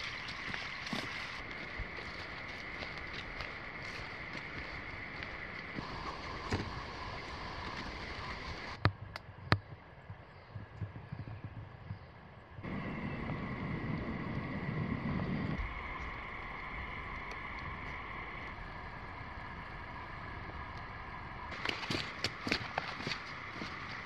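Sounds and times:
footsteps crunching on dirt: 0.0s - 8.7s, 21.5s - 24.0s
wind rumble on microphone: 0.0s - 24.0s
faint high hum: 11.9s - 24.0s.

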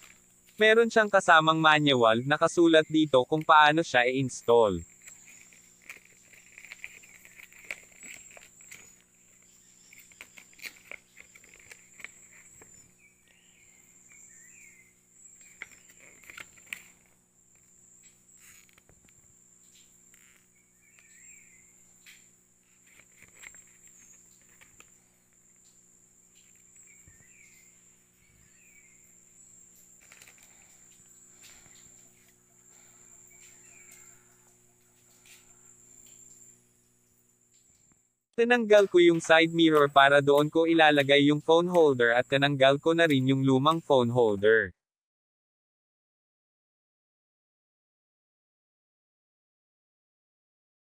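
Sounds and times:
high-pitched insect trill: 0.0s - 44.2s
paper rustling: 4.9s - 12.9s, 15.4s - 17.1s, 22.6s - 24.9s, 30.0s - 32.9s.

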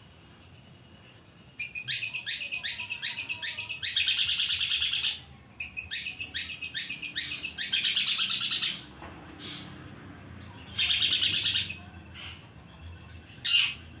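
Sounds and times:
shrike singing: 1.5s - 8.9s, 10.7s - 12.4s.

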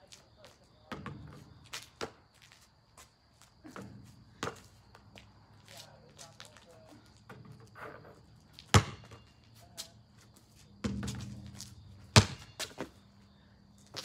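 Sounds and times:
basketball bouncing: 0.9s - 2.2s, 3.8s - 4.7s, 8.6s - 9.3s, 10.8s - 12.9s.

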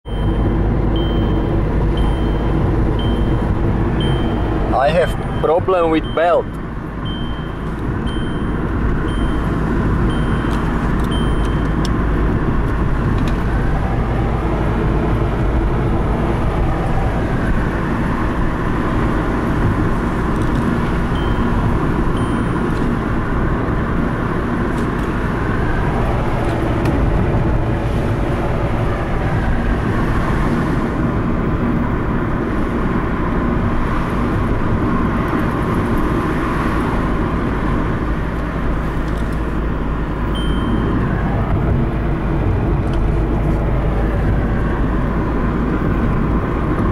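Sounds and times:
road and engine rumble: 0.0s - 46.9s
short high beeps: 0.1s - 12.0s, 21.1s - 23.0s, 40.3s - 41.3s.

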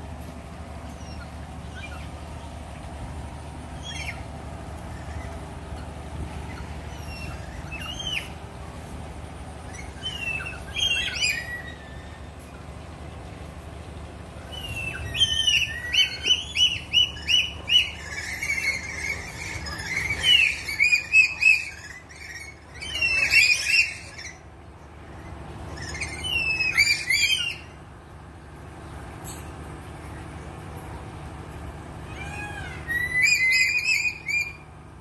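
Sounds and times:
parrots screeching: 3.8s - 4.2s, 6.5s - 8.4s, 9.7s - 12.2s, 14.5s - 24.4s, 25.1s - 27.8s, 32.0s - 34.7s.

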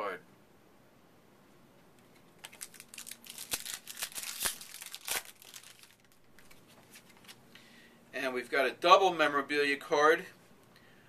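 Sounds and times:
wrapper crinkling and tearing: 2.4s - 7.4s.

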